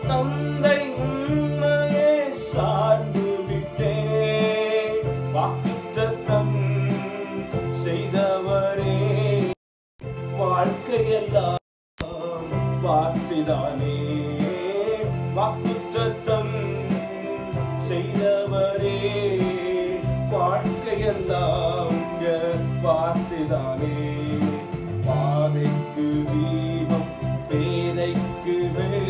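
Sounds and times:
man singing: 0:00.0 - 0:09.6, 0:10.3 - 0:29.0
electronic keyboard with beat: 0:00.0 - 0:29.0.

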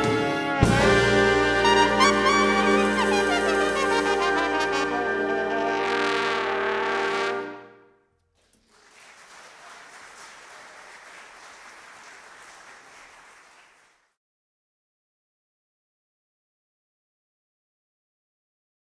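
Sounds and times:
big band brass chord: 0:00.0 - 0:07.9
audience applause: 0:08.4 - 0:14.2.

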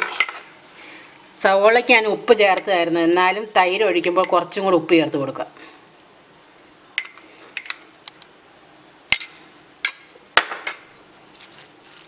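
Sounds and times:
metal spoon clinking on steel bowl: 0:09.1 - 0:10.9.

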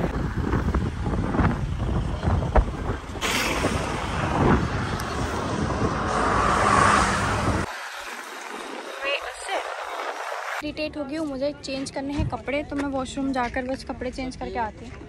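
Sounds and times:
wind buffeting microphone: 0:00.0 - 0:07.7
car road rumble: 0:00.0 - 0:10.6.

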